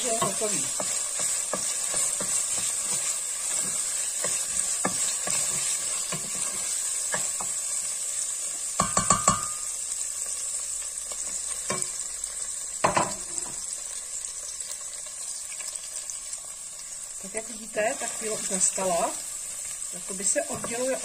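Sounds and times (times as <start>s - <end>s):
spoon knocking on pot: 0.0s - 7.6s, 8.8s - 9.7s, 12.8s - 13.6s
wooden spoon scraping pot: 0.0s - 7.7s
food sizzling in hot fat: 0.0s - 21.0s.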